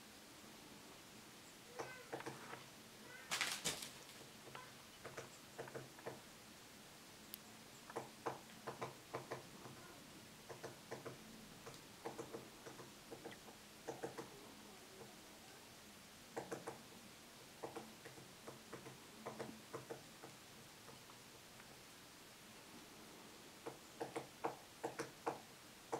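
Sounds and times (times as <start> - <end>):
woodpecker pecking at wood: 1.7 - 2.6, 4.4 - 6.2, 7.9 - 9.8, 10.5 - 14.4, 16.4 - 16.8, 17.6 - 21.0, 23.6 - 25.9.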